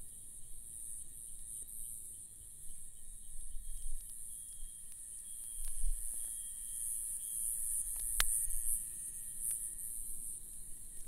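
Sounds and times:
high-pitched insect chorus: 0.0s - 11.0s
faint clicks: 7.9s - 8.4s.

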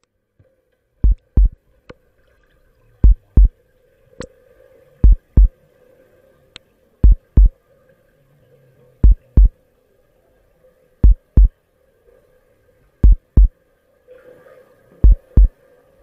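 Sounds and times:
faint steady hum: 0.0s - 16.0s
heartbeat thumps: 1.0s - 1.6s, 3.0s - 3.5s, 5.0s - 5.5s, 7.0s - 7.6s, 9.0s - 9.6s, 11.0s - 11.5s, 13.0s - 13.5s, 15.0s - 15.5s.

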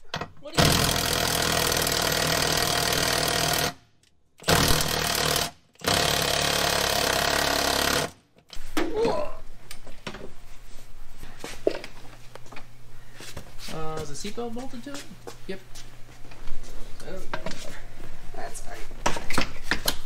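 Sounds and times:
impact driver hammering: 0.6s - 3.8s, 4.4s - 8.2s.

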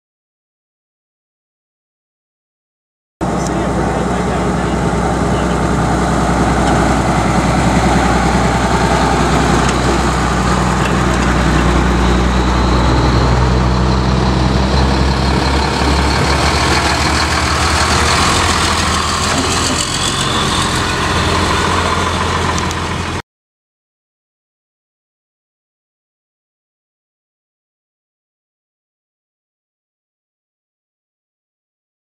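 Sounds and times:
heavy trucks driving past: 3.2s - 23.2s.

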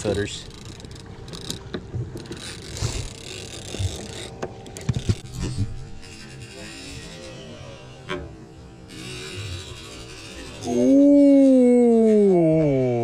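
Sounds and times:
fishing reel clicking: 0.1s - 5.3s, 8.9s - 12.2s.

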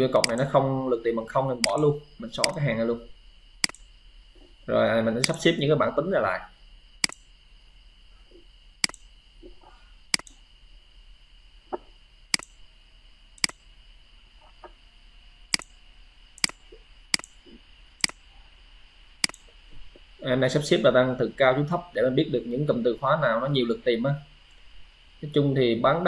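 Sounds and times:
faint high-pitched whine: 0.0s - 26.0s
computer mouse clicking: 0.2s - 0.6s, 1.6s - 2.6s, 3.6s - 3.9s, 5.2s - 5.4s, 7.0s - 7.3s, 8.8s - 9.1s, 10.1s - 10.4s, 11.7s - 12.6s, 13.4s - 13.6s, 15.5s - 15.8s, 16.4s - 17.4s, 18.0s - 18.3s, 19.2s - 19.6s.

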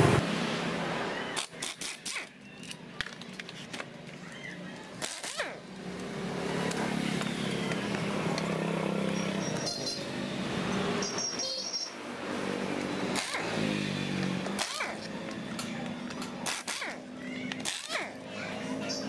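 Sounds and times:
steady motor hum: 4.3s - 11.1s, 11.9s - 19.0s.

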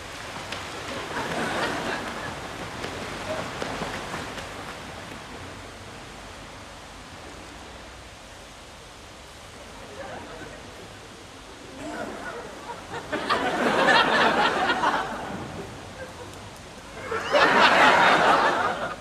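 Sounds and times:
water splashing: 0.0s - 6.0s
steady background hiss: 0.0s - 19.0s.

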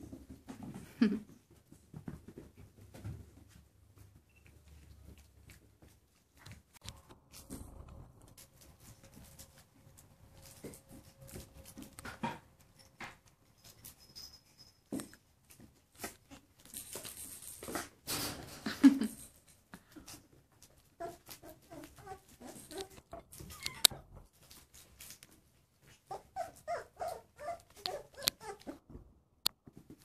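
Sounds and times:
puppies scuffling and playing: 0.0s - 30.0s
puppy whimpering yips: 21.0s - 24.0s, 26.1s - 28.8s
puppy crying: 21.0s - 24.1s, 26.0s - 28.8s.

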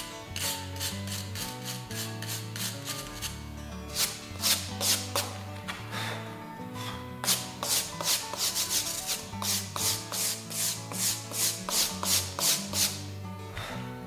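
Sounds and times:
quiet background music: 0.0s - 14.0s
hand brush scrubbing brick: 0.4s - 5.4s, 7.2s - 13.0s.

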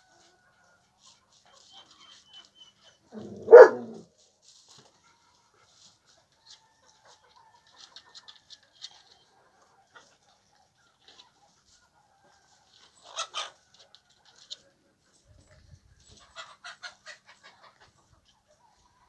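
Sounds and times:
dog growling: 3.2s - 4.0s
dog barking: 3.2s - 4.1s.

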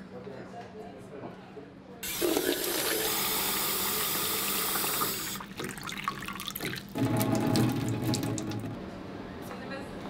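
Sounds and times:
water running from tap into cup: 2.0s - 8.7s.

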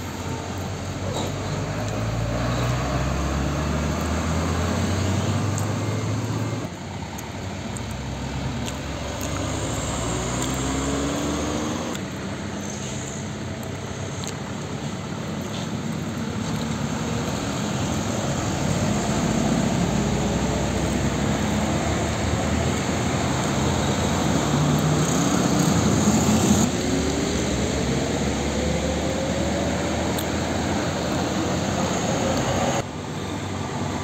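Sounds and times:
truck engines passing slowly: 0.0s - 34.0s
truck engine revving: 0.7s - 6.7s, 7.7s - 12.2s, 15.8s - 32.8s.

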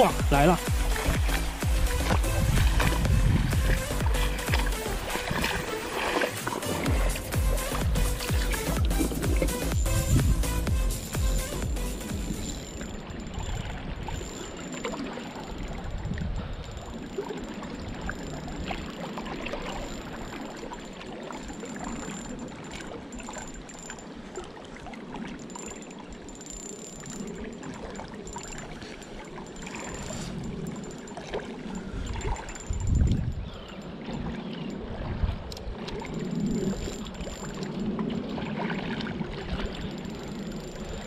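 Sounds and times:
low rumble: 0.0s - 5.1s, 6.8s - 13.9s
shallow river water trickling: 0.0s - 41.0s
fishing reel clicking: 0.2s - 24.4s, 25.3s - 34.9s, 35.5s - 38.0s, 39.6s - 41.0s.

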